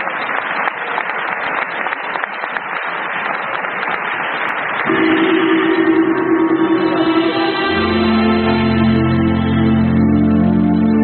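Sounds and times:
audience applauding: 0:00.0 - 0:08.0
music with held note: 0:04.9 - 0:11.0.

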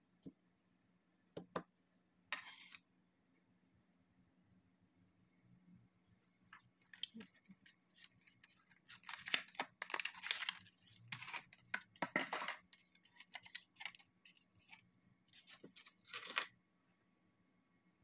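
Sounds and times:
cardboard and plastic rustling: 0:07.0 - 0:16.5.

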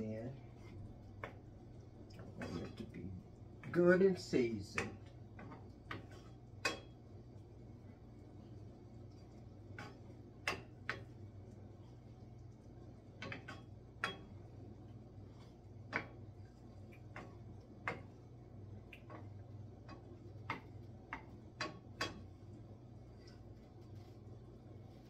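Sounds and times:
low steady hum: 0:00.0 - 0:25.0
wooden spoon knocking skillet: 0:03.6 - 0:07.0, 0:09.1 - 0:11.4, 0:13.1 - 0:22.4.

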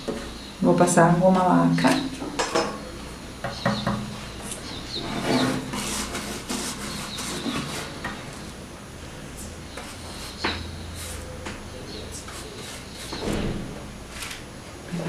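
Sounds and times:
paintbrush scratching: 0:04.9 - 0:08.0, 0:12.1 - 0:13.2.

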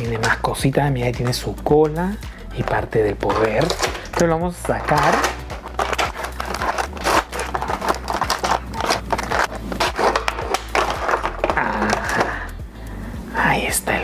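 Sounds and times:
plastic packaging crackling: 0:02.5 - 0:12.5.

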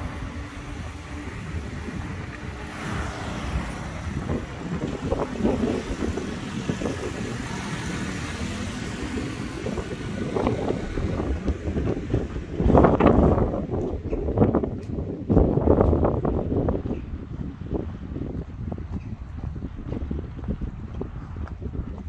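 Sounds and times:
car tyre hiss passing: 0:00.0 - 0:11.3
wind on microphone: 0:00.0 - 0:22.0.

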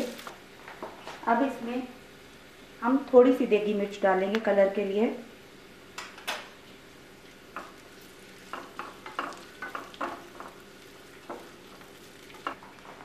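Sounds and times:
spices sizzling in hot oil: 0:00.0 - 0:00.6, 0:01.4 - 0:13.0.

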